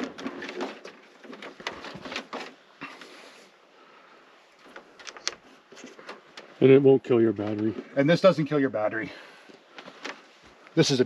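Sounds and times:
clicks taps and rustles of wires: 0.0 - 3.2, 4.6 - 8.8, 9.4 - 10.8.

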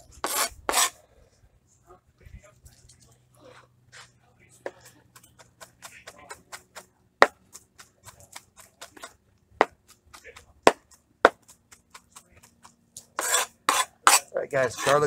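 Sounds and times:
knife chopping on plastic board: 5.4 - 11.6.

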